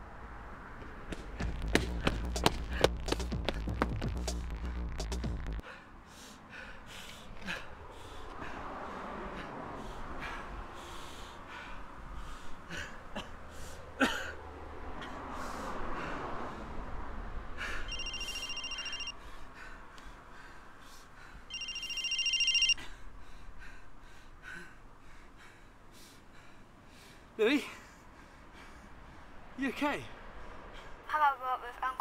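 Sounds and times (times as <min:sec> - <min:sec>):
man breathing heavily and gasping: 0:05.6 - 0:17.9, 0:22.8 - 0:31.0
mobile phone ringtone: 0:17.9 - 0:19.2, 0:21.5 - 0:22.8.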